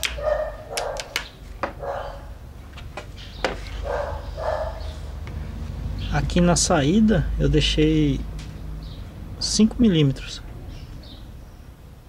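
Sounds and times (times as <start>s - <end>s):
dog barking: 0.2s - 1.2s, 1.8s - 2.4s, 3.8s - 5.1s.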